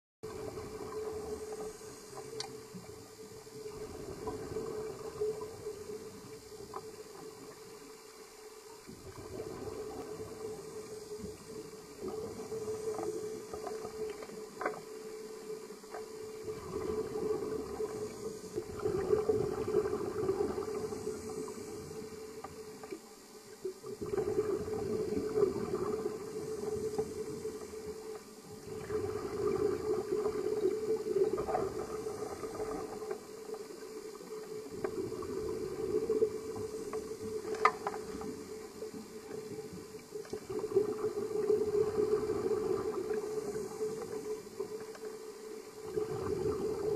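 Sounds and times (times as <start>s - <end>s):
steady hum: 0.2s - 46.9s
bubbly underwater exhalations: 16.5s - 21.3s, 24.0s - 26.5s, 28.6s - 33.0s, 45.8s - 46.9s.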